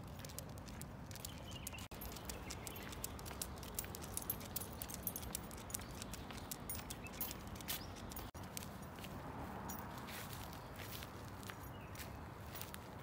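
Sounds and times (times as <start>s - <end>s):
dog claws clicking on paving: 0.0s - 8.9s
metal leash clip jangling: 0.2s - 9.0s.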